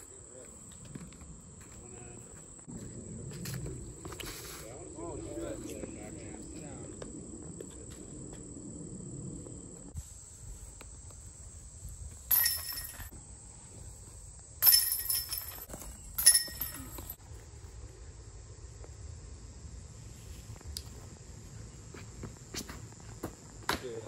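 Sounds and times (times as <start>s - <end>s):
high insect trill: 0.0s - 24.0s
loud ringing impacts: 12.3s - 13.1s.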